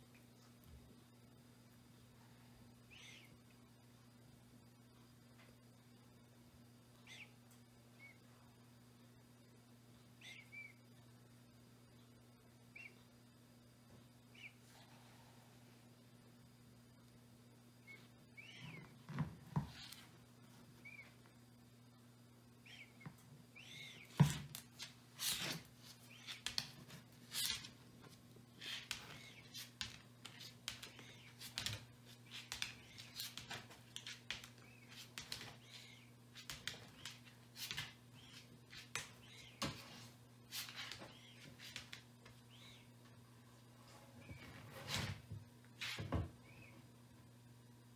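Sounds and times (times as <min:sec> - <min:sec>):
faint low hum: 0:00.0 - 0:47.9
tortoise claws clicking on tiles: 0:28.6 - 0:35.6.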